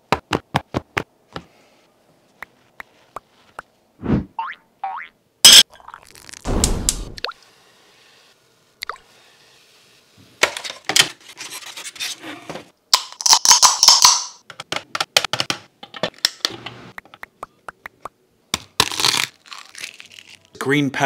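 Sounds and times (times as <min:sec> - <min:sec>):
eggshell cracking: 0:05.5 - 0:06.5.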